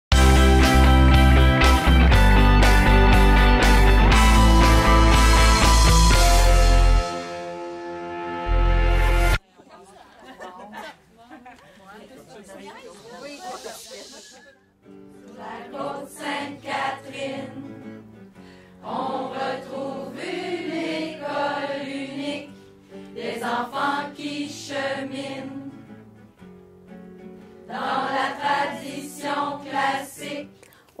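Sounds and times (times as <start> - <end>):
group singing together: 15.2 - 18.0, 18.8 - 25.9, 27.6 - 30.6.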